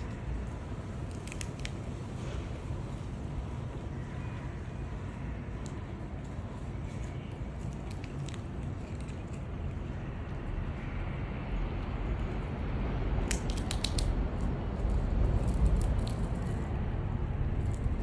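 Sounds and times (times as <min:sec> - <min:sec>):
squirrel gnawing peanut shell: 0:00.0 - 0:03.5, 0:05.4 - 0:10.9, 0:11.6 - 0:18.0
low rumble: 0:11.6 - 0:18.0.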